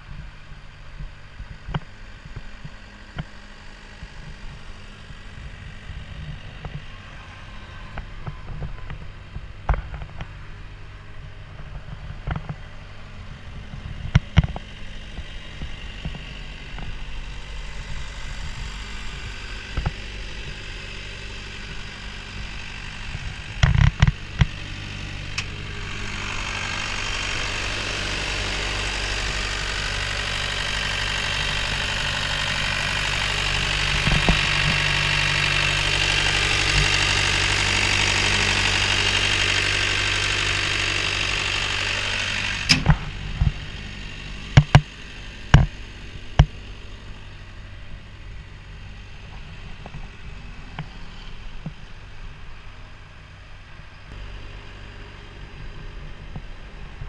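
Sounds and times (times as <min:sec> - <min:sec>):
diesel engine idling: 0:00.0 - 0:57.0
sharp knocks and clicks: 0:44.6 - 0:44.9.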